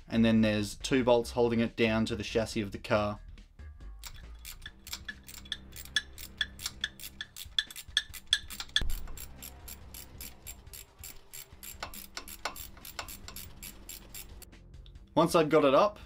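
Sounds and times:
background music: 0.0 - 16.0
socket ratchet clicking: 4.0 - 14.5.

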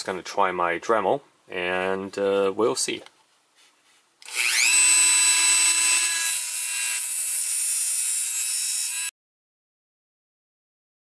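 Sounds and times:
rotary tool high-pitched whine: 4.2 - 9.1.

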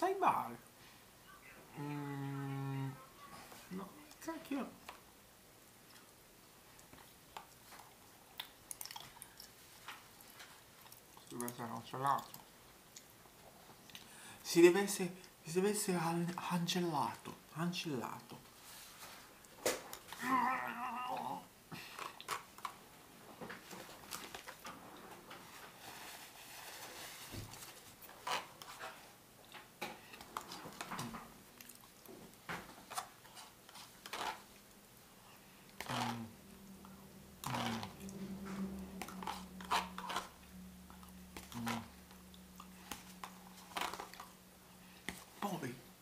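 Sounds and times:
low steady hum: 0.0 - 46.0
person chewing food: 5.8 - 14.1, 21.8 - 22.8, 29.4 - 45.4.

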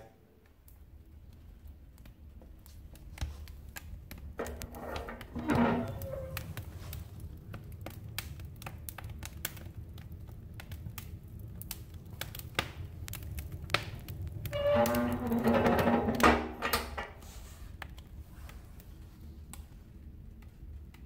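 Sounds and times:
logs crackling and popping: 0.0 - 21.0
low rumble of fire: 0.0 - 21.0
metal stove door opening: 4.4 - 6.6, 14.5 - 17.2.

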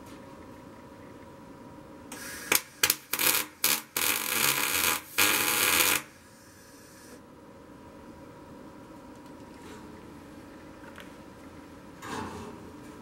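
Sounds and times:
welding arc crackling: 2.1 - 6.2.

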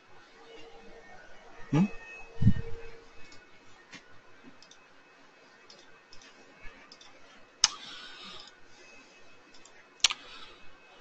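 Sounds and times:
computer mouse clicking: 4.6 - 4.8, 5.6 - 8.6, 9.5 - 10.4.

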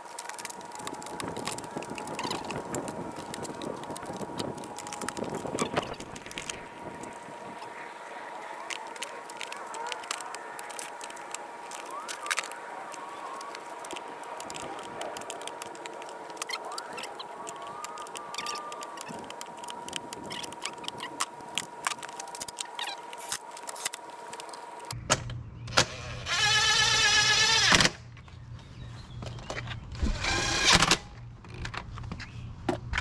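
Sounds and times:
cordless drill whirring: 26.0 - 27.8, 30.1 - 31.0.

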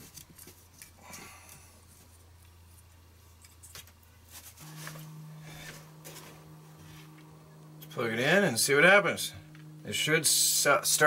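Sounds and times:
low steady hum: 0.7 - 11.0.

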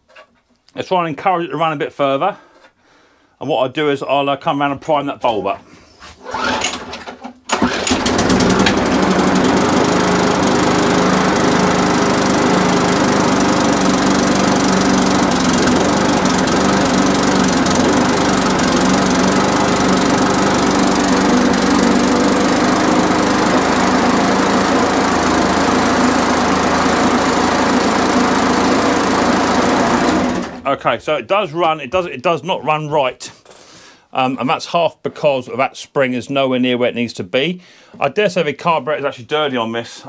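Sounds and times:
lawn mower engine running: 6.3 - 30.7.

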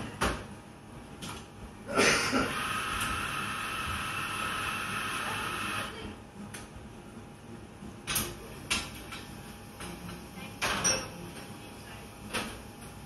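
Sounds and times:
hissing machine noise: 2.3 - 6.0.

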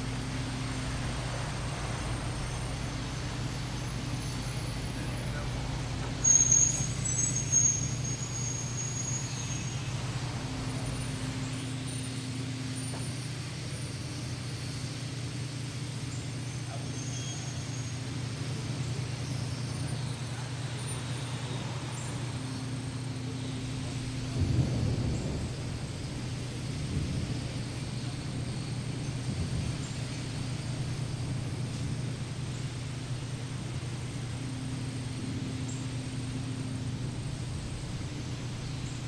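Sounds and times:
steady low drone: 0.0 - 6.3, 18.2 - 39.0.

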